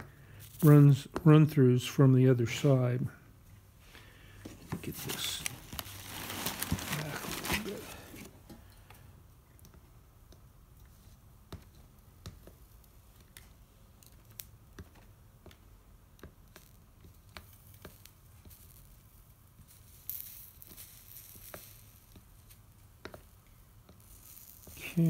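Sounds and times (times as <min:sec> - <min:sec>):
solder crackling and popping: 0:00.0 - 0:01.6, 0:03.4 - 0:25.0
sizzling hiss: 0:17.4 - 0:23.2, 0:23.9 - 0:25.0.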